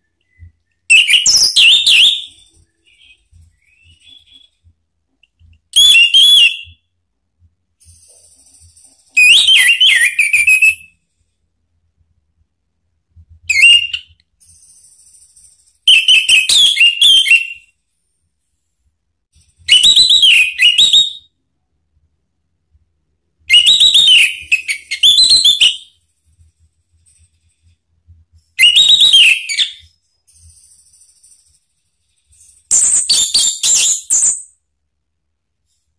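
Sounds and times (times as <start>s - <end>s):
thrush singing whistled notes: 13.4s - 17.7s, 28.4s - 34.6s.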